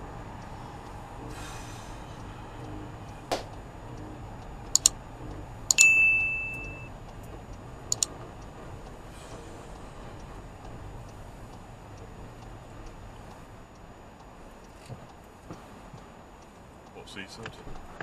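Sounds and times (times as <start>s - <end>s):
bell ding: 5.8s - 6.9s.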